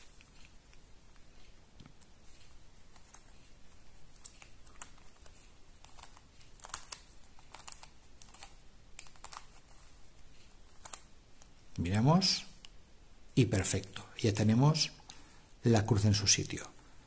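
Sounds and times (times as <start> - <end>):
plastic puzzle clicking: 4.2 - 9.8, 10.7 - 11.5.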